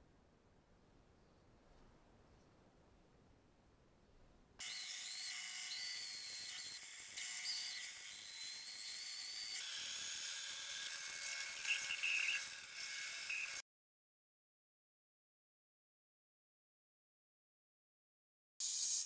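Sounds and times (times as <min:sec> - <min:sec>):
band saw whining: 0:04.6 - 0:13.6.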